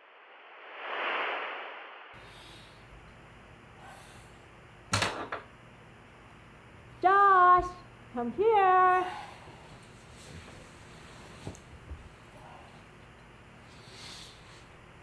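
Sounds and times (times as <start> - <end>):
hiss-like whoosh: 0.0 - 2.6.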